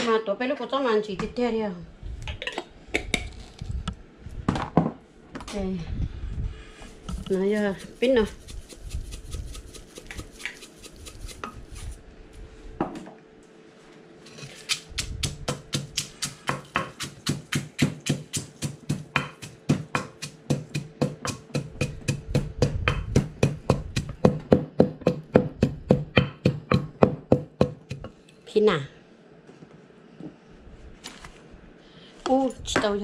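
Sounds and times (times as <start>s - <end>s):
mortar and pestle pounding: 7.1s - 11.9s, 14.6s - 28.1s.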